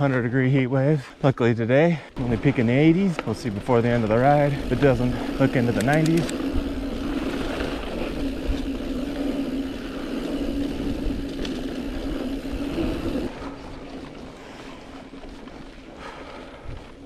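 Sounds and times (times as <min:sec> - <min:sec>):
bike tyre noise: 0:02.2 - 0:17.0.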